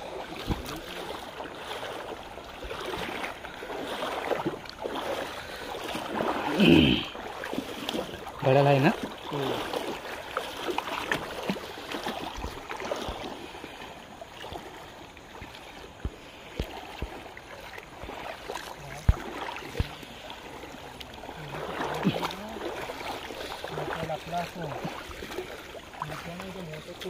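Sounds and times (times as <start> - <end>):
feet splashing in water: 0.0 - 27.0.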